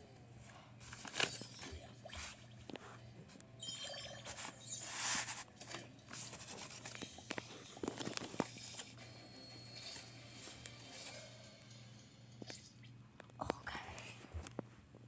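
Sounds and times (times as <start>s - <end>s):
paper rustling: 0.8s - 1.5s, 4.3s - 9.0s.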